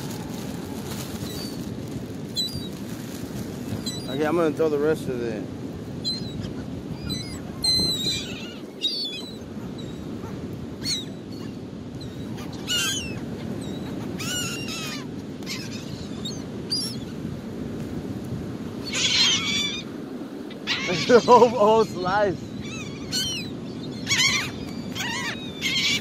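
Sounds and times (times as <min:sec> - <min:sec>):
gulls calling: 0:06.0 - 0:17.3, 0:18.8 - 0:26.0.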